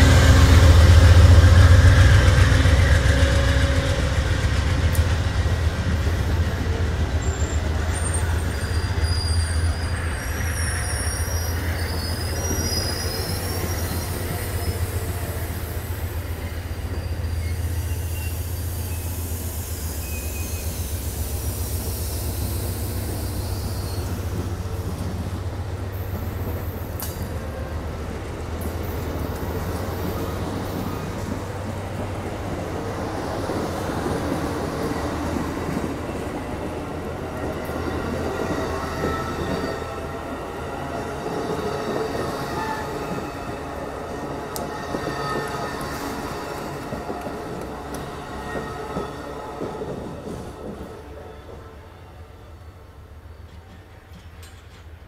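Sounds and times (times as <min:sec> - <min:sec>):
train clanks: 0:00.0 - 0:51.8, 0:52.9 - 0:55.0
train wheels rumbling on rails: 0:00.0 - 0:55.0
high wheel squeal: 0:07.2 - 0:24.3.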